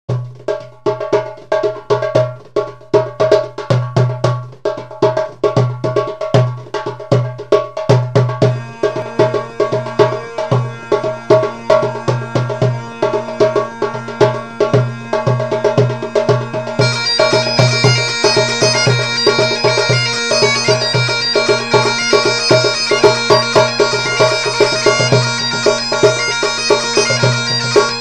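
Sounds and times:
wood block percussion rhythm: 0.1 - 28.0
held drone tone: 8.4 - 28.0.

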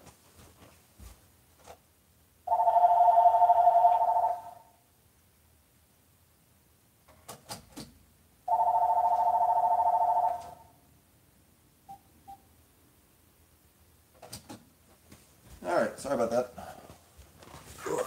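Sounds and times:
telephone ringing: 2.5 - 4.8, 8.5 - 10.8.

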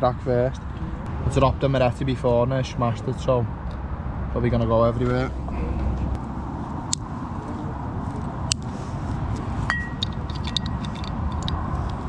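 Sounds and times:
low traffic rumble: 0.0 - 12.0
glass bottles clinking: 9.7 - 10.7.

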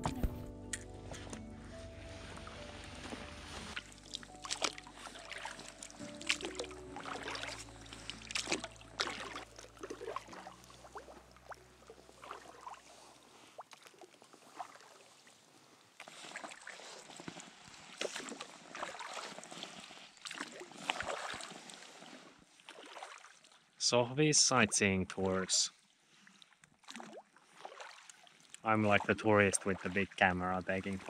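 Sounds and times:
background music low notes: 0.0 - 12.7
oars pulling through water: 0.0 - 23.8, 25.1 - 31.0
water splashes and drips: 2.3 - 15.4, 16.0 - 31.0.

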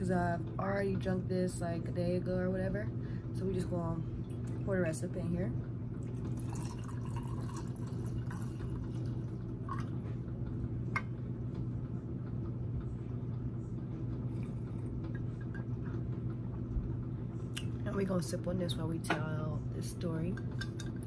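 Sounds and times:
steady low hum: 0.0 - 21.0
liquid dripping: 6.0 - 10.0
wine pouring into metal tumbler: 6.3 - 9.9.

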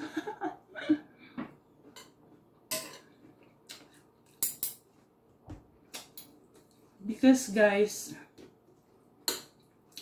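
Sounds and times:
cutlery clinking on a ceramic plate: 1.9 - 4.9.

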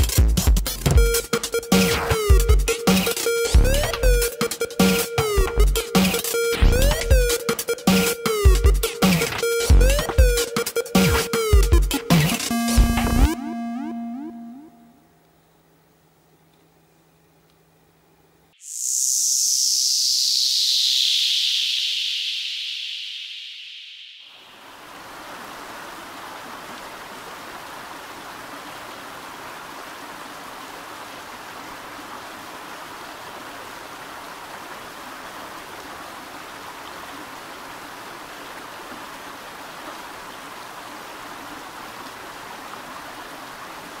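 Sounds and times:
high hiss: 18.6 - 26.2.

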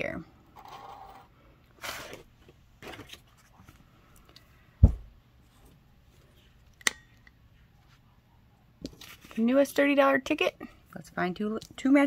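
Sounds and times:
dull thump on wooden desk: 4.8 - 5.1
faint paper rustling: 8.8 - 9.4.

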